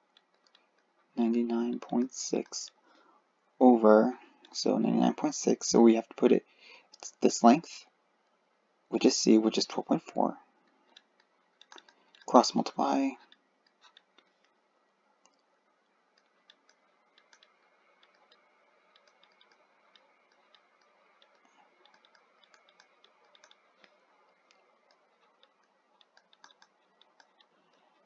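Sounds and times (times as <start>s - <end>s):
small clicks and taps: 0.0s - 3.1s, 10.6s - 14.6s, 15.2s - 28.0s
light hiss: 0.0s - 7.9s.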